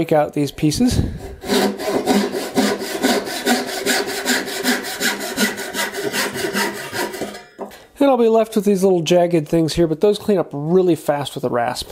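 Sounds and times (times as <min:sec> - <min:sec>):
handsaw cutting wood: 0:01.0 - 0:07.4.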